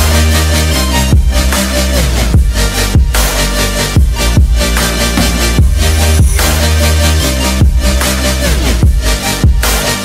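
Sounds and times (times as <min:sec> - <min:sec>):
electronic dance music: 0:05.1 - 0:07.2.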